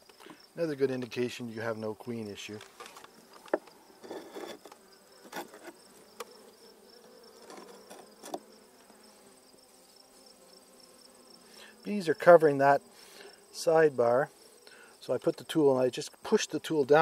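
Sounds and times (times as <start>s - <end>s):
bees humming: 0.3s - 16.4s
hive tool tapping wooden frames: 2.6s - 3.8s, 4.6s - 9.0s.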